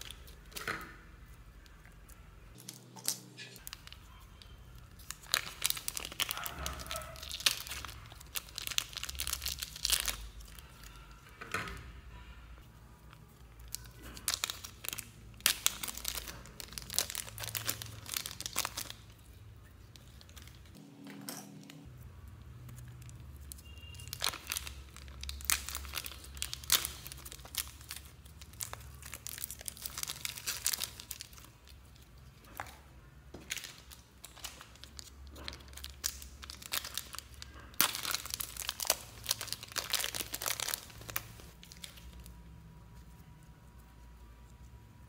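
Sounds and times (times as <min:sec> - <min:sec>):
slime crackling and popping: 0:00.0 - 0:11.0, 0:13.1 - 0:19.2, 0:22.2 - 0:42.4.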